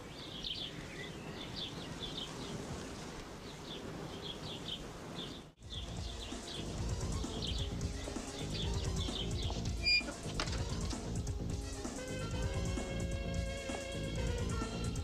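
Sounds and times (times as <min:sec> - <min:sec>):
small birds chirping: 0:00.0 - 0:11.8.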